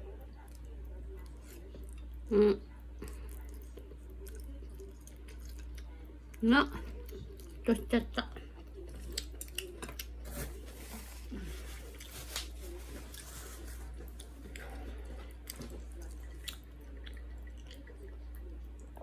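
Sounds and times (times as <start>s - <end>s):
low steady hum: 0.0s - 19.0s
person chewing noodles: 3.0s - 7.6s, 8.5s - 10.4s, 13.1s - 19.0s.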